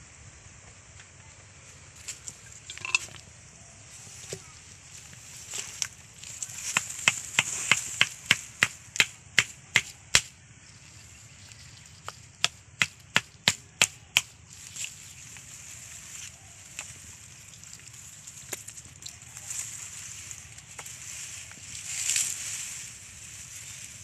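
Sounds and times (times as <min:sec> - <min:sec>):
wet slaps in muddy water: 0:06.6 - 0:10.3, 0:12.4 - 0:14.3.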